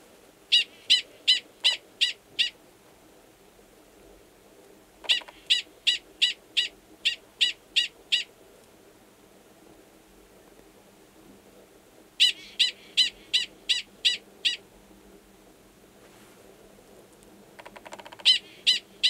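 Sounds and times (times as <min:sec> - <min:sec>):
prairie dog calling: 0:00.5 - 0:02.6, 0:05.0 - 0:08.3, 0:12.2 - 0:14.6, 0:17.6 - 0:19.0.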